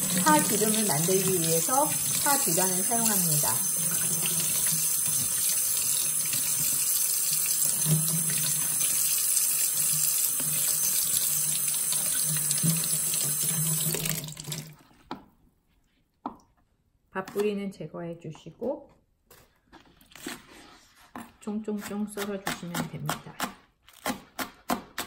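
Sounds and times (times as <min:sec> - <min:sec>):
faucet running into metal sink: 0:00.0 - 0:14.8.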